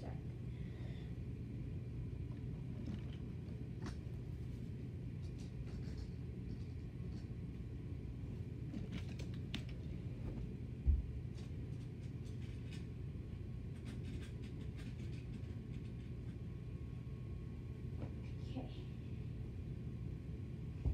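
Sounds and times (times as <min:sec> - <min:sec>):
low rumble with hum: 0:00.0 - 0:20.9.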